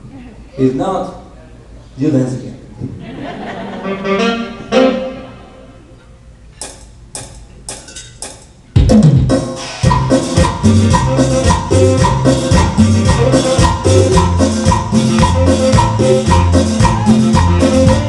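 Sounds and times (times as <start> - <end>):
keyboard band groove: 6.6 - 18.0.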